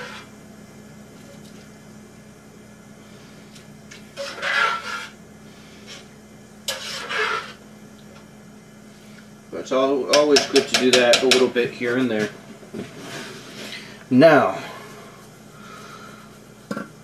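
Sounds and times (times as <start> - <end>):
spoon scraping pot: 4.1 - 5.2, 6.7 - 7.6
spoon stirring pasta in pot: 6.7 - 7.6.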